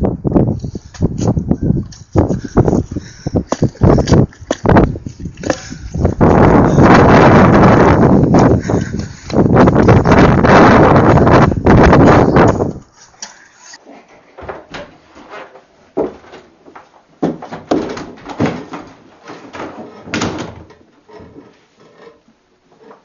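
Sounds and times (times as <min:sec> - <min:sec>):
knocks and bumps: 0:01.8 - 0:12.8, 0:14.4 - 0:21.6
glass door opening and shutting: 0:14.4 - 0:16.5, 0:17.3 - 0:22.1.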